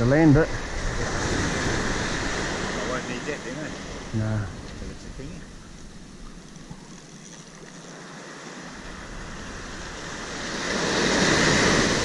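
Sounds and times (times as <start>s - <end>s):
surf breaking on beach: 7.3s - 12.0s.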